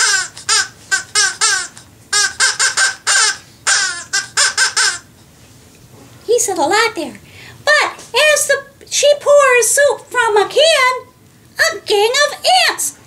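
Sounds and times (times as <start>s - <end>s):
squeaky parrot-style chatter: 0.0s - 5.1s.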